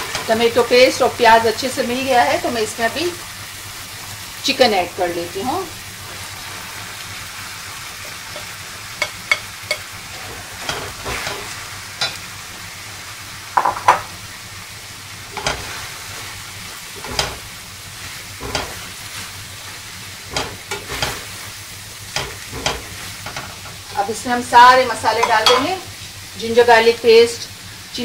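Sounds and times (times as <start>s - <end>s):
food sizzling in pan: 0.0s - 28.0s
spoon scraping frying pan: 8.0s - 12.2s, 17.0s - 17.4s, 25.2s - 25.8s.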